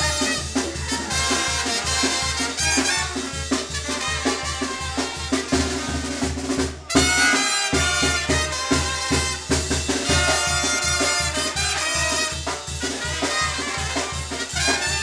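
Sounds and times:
latin dance music with brass: 0:00.0 - 0:15.0.

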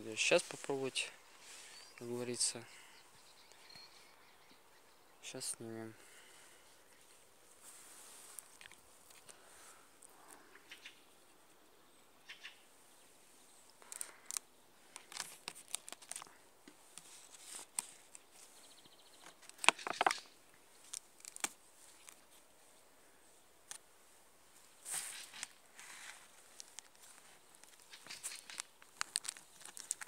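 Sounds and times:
plastic bottle and wrapping crinkling: 0:13.8 - 0:18.6, 0:19.2 - 0:22.4, 0:24.8 - 0:30.0.

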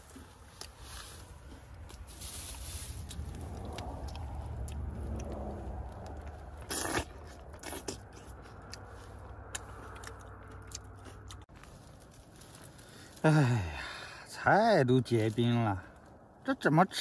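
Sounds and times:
rustling handling noise: 0:00.0 - 0:03.5, 0:11.5 - 0:13.2
chewing: 0:00.0 - 0:13.2
biting into a tomato: 0:03.0 - 0:11.5.

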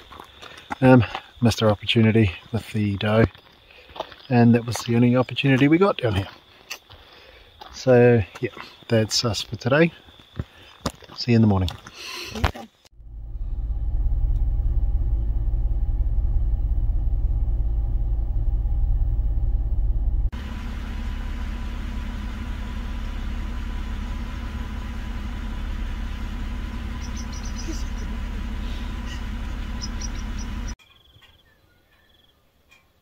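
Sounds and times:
car engine idling: 0:12.9 - 0:30.8.

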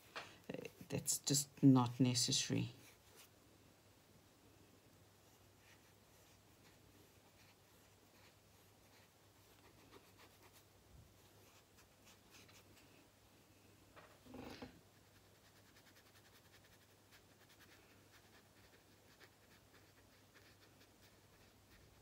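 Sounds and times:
paintbrush scratching on paper: 0:02.7 - 0:03.3, 0:05.2 - 0:12.8, 0:14.4 - 0:22.0.

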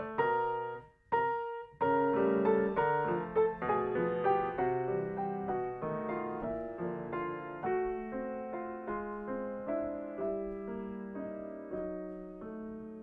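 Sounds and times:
grand piano melody: 0:00.0 - 0:13.0.

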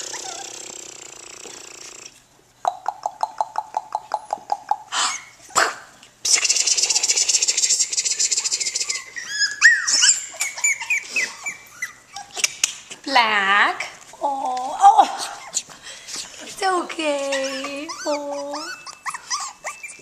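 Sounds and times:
puppies whimpering: 0:00.0 - 0:01.2, 0:07.8 - 0:12.8, 0:15.2 - 0:15.8, 0:17.0 - 0:20.0
puppies yapping and yipping: 0:00.0 - 0:01.2, 0:06.8 - 0:12.9, 0:15.2 - 0:16.4, 0:17.1 - 0:20.0.

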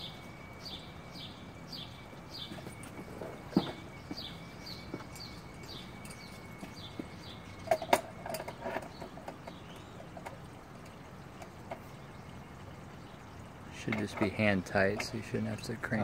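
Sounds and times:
bird chirping: 0:00.0 - 0:10.4
clicks and knocks of handling: 0:13.8 - 0:15.2.

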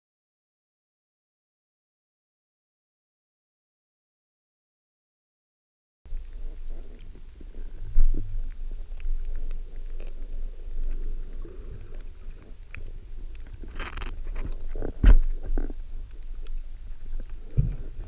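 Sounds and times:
crackling clicks: 0:06.1 - 0:18.0.

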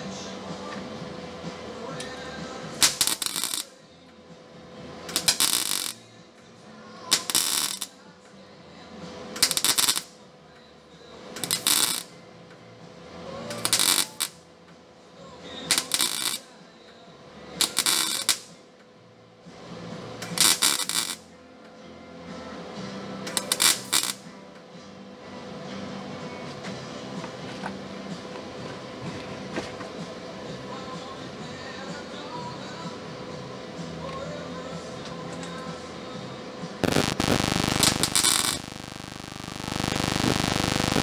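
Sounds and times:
welder arc noise bursts: 0:02.8 - 0:03.7, 0:05.1 - 0:06.0, 0:07.1 - 0:07.9, 0:09.4 - 0:10.1, 0:11.4 - 0:12.1, 0:13.6 - 0:14.3, 0:15.7 - 0:16.4, 0:17.6 - 0:18.4, 0:20.3 - 0:21.2, 0:23.3 - 0:24.2, 0:36.8 - 0:41.0.

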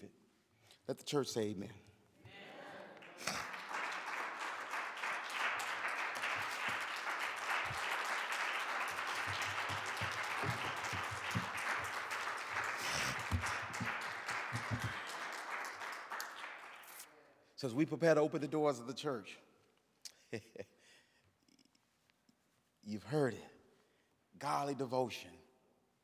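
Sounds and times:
congregation applauding: 0:02.9 - 0:17.1.

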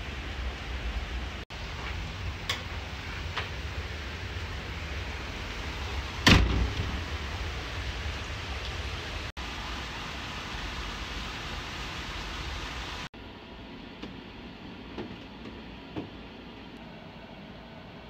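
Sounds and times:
steady hiss: 0:00.0 - 0:13.1.

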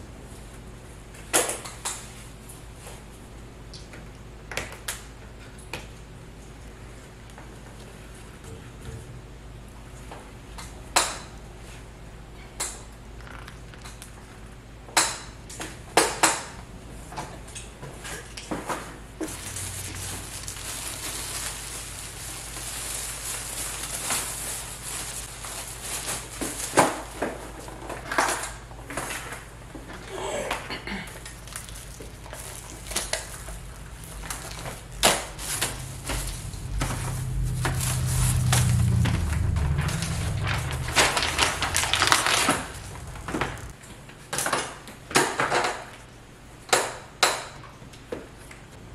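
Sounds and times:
low rumble: 0:19.2 - 0:23.6, 0:31.4 - 0:43.8
plastic wrapping crinkling: 0:19.3 - 0:27.4, 0:31.1 - 0:43.8.

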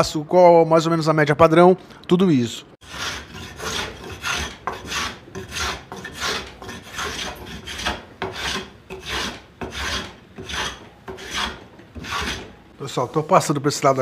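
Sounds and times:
hand plane rasping on wood: 0:02.8 - 0:12.6.

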